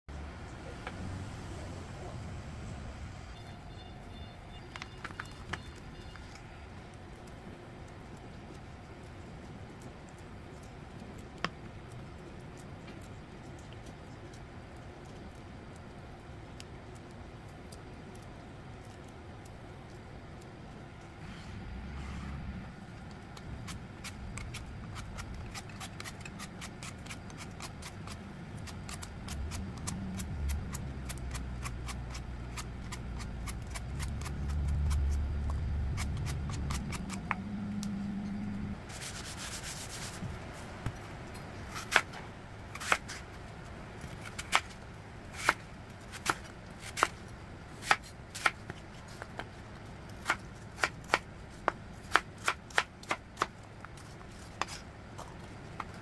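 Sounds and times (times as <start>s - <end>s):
peeler scraping apple skin: 23.6s - 37.3s.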